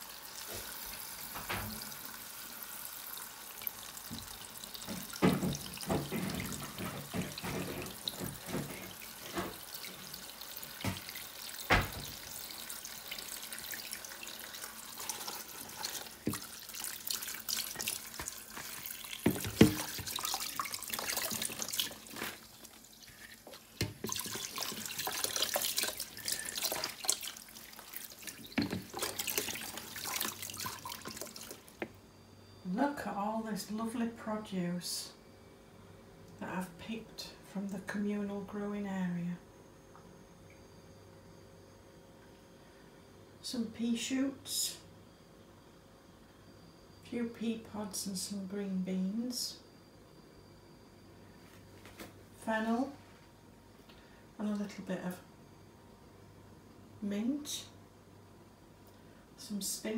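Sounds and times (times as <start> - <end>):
tap running into sink: 1.3 - 2.0, 4.0 - 12.4, 15.8 - 16.5, 17.7 - 22.4, 23.5 - 26.0, 28.2 - 32.0.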